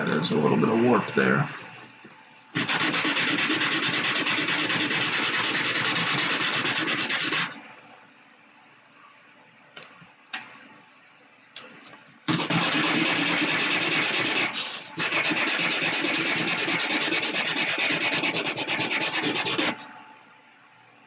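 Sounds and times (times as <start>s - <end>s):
plastic part sanding on sandpaper: 2.6s - 7.6s, 12.3s - 19.8s.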